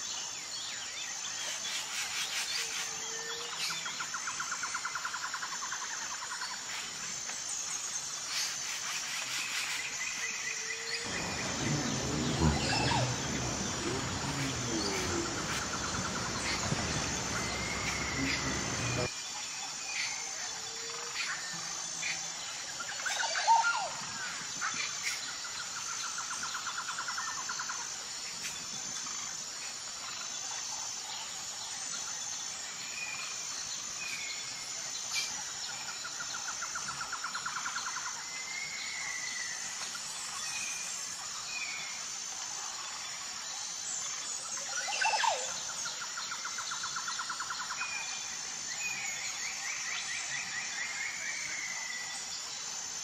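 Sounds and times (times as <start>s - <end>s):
high-pitched insect chorus: 0.0s - 53.0s
birds chirping and calling: 11.1s - 19.1s.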